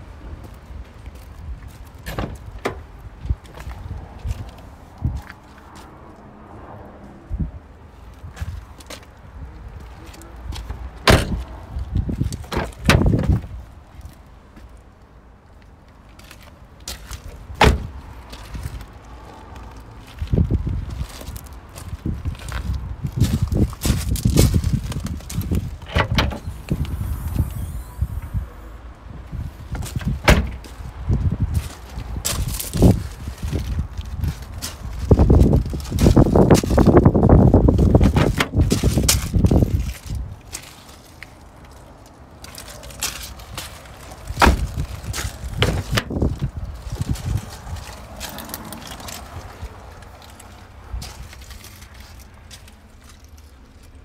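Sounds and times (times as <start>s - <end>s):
tailgate shutting thud: 2.0s - 2.9s, 11.0s - 11.5s, 12.5s - 13.5s, 17.6s - 18.0s, 25.7s - 28.8s, 29.8s - 30.7s, 38.0s - 38.8s, 44.4s - 46.3s
tailgate latch clicking open: 25.9s - 28.4s, 30.2s - 30.6s.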